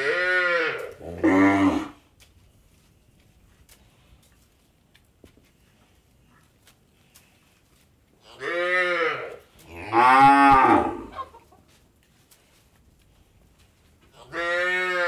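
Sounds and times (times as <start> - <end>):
cattle mooing: 0.0 - 2.0, 8.4 - 11.1, 14.3 - 15.0.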